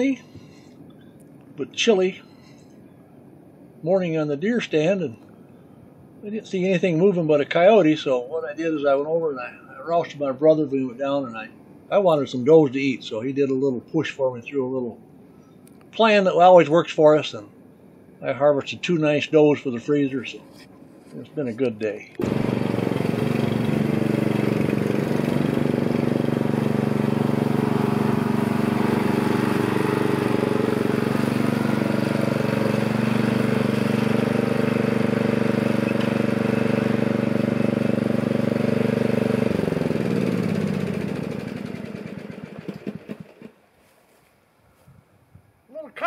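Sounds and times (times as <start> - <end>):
mower engine running: 22.2 - 43.6.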